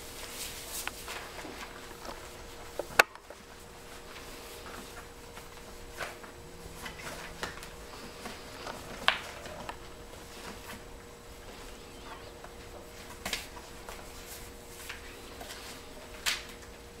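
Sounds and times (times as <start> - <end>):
puppies scuffling: 0.0 - 16.4
faint steady hum: 0.0 - 17.0
paws tapping on floor: 0.7 - 10.8.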